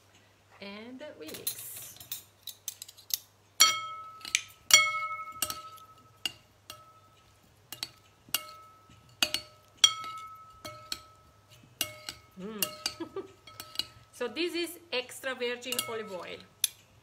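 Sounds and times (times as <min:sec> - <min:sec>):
utensil clinking against bowl: 0:03.6 - 0:14.1, 0:15.6 - 0:16.9.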